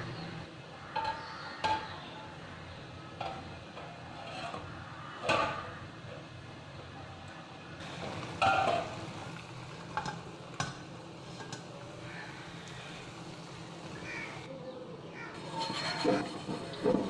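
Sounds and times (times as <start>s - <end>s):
metal pots and pans clinking: 8.3s - 9.0s, 15.4s - 17.0s.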